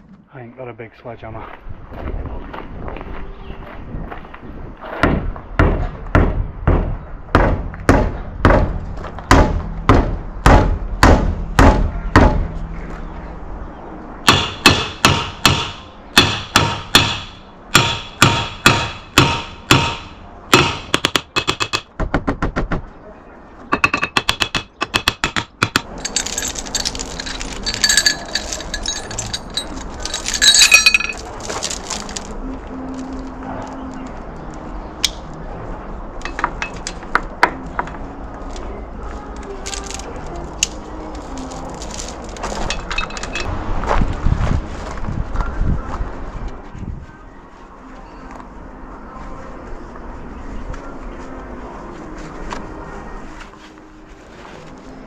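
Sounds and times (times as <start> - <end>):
light knocks and clinking: 23.7 - 32.2.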